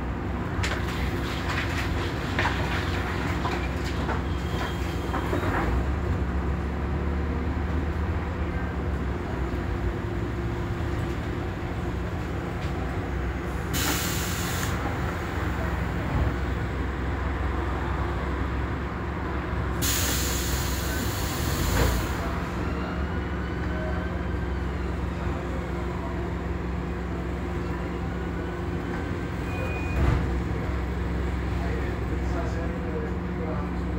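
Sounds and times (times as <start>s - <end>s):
bus diesel engine hum: 0.0s - 33.9s
air brake hisses: 13.7s - 14.8s, 19.8s - 22.2s.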